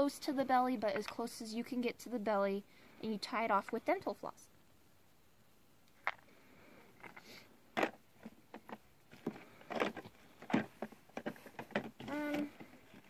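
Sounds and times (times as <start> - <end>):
plastic items clicking and knocking: 6.0 - 6.3, 7.0 - 13.0.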